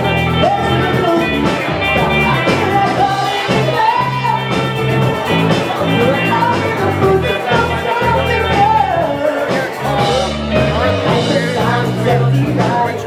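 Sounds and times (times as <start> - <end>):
drum kit: 0.0 - 13.0
electric guitars: 0.0 - 13.0
person singing: 0.0 - 13.0.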